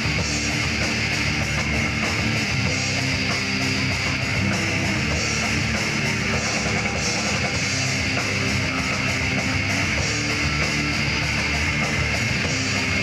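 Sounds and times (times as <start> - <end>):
drum kit: 0.0 - 13.0
electric guitars: 0.0 - 13.0.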